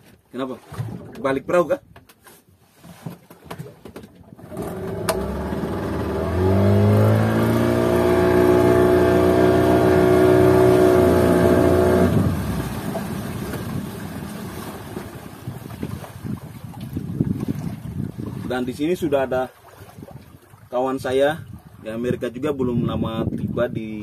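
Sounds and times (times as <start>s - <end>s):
outboard motor revving: 4.4s - 15.5s.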